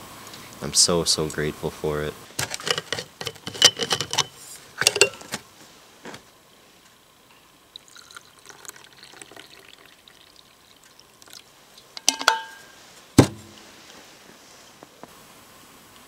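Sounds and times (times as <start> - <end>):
flask knocking down: 2.4 - 5.4, 12.0 - 13.6
hot drink trickling into metal cup: 7.7 - 12.8
metallic clinks: 12.0 - 12.8.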